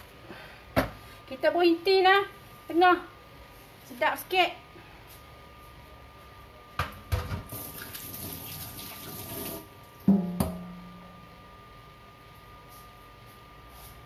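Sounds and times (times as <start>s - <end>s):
water running from tap: 7.5s - 9.7s
container set down with ringing knock: 10.1s - 10.9s.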